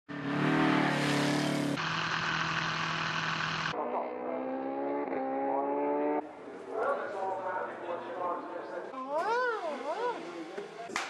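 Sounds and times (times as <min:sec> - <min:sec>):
motorcycle engine accelerating: 0:00.1 - 0:06.4
motorcycle racing engines: 0:00.1 - 0:11.0.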